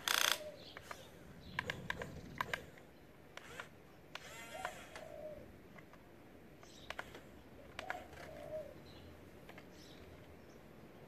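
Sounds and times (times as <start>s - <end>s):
toy excavator arm clicking: 0.0s - 5.1s, 6.6s - 8.5s
bird calling: 0.0s - 5.6s, 6.6s - 10.1s.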